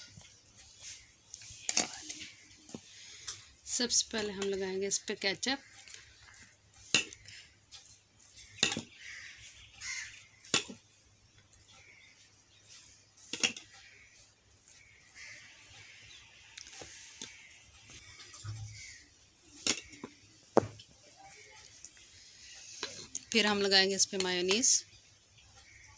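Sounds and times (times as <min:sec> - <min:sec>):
dull thump: 0:20.6 - 0:20.8.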